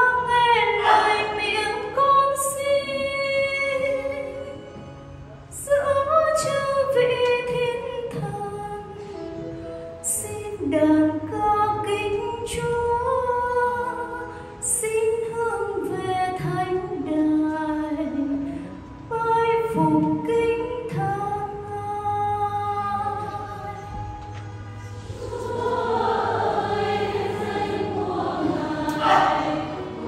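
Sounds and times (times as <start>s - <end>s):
woman singing unaccompanied: 0.0s - 4.6s, 10.1s - 18.5s.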